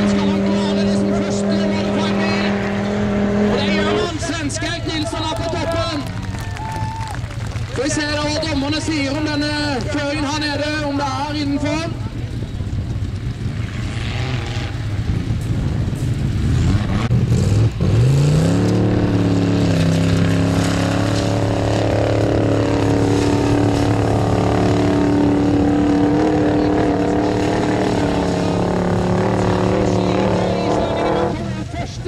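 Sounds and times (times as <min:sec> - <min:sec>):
engine revving hard: 0:00.0 - 0:06.1, 0:13.6 - 0:15.0, 0:16.3 - 0:31.8.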